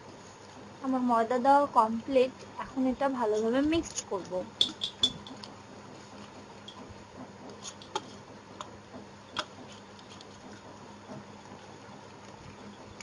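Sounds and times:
faint steady hum: 0.0s - 13.0s
whisk wires tapping bowl: 3.4s - 5.6s, 6.2s - 11.6s.

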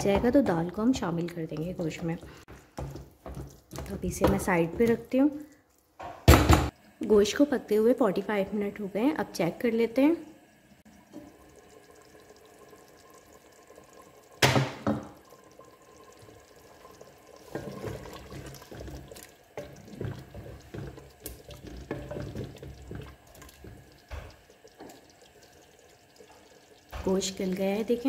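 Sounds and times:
wooden spoon stirring liquid: 0.0s - 5.8s, 15.2s - 28.0s.

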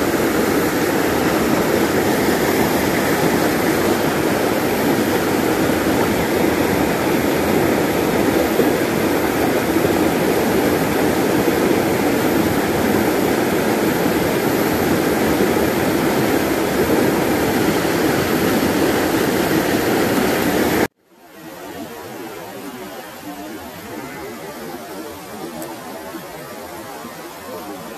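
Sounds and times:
stream rushing over stones: 0.0s - 20.9s.

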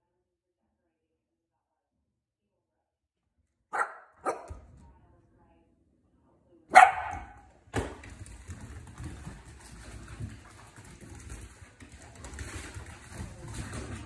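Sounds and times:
puppy barking: 3.7s - 4.6s, 6.7s - 7.5s.

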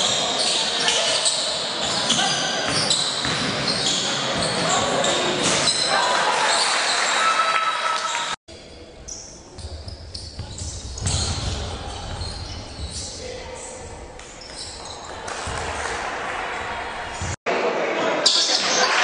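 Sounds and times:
echoing voices: 0.0s - 19.0s
basketball bouncing on wooden floor: 9.6s - 13.1s.

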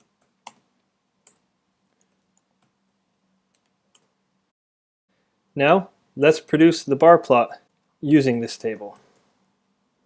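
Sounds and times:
computer keyboard keystrokes: 1.3s - 2.7s.

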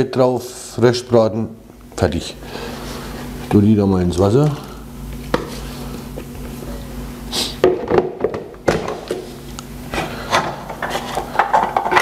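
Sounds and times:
plastic bowl knocking and clattering: 7.6s - 9.2s.

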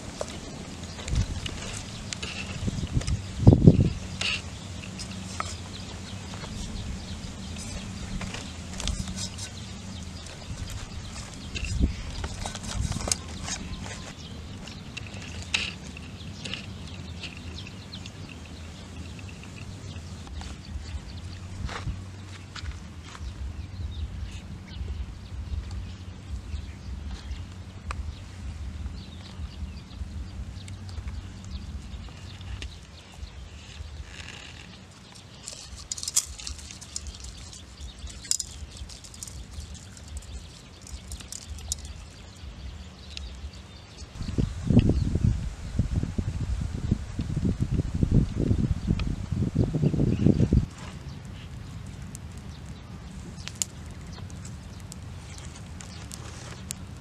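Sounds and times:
wind rumble on microphone: 0.0s - 57.0s
clicks and rustles of handling: 0.1s - 23.4s, 30.6s - 44.2s, 50.6s - 57.0s.

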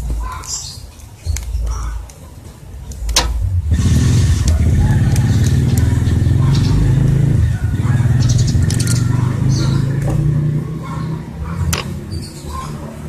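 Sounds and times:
small engine running: 3.7s - 10.6s
sharp clicks: 8.3s - 9.2s.

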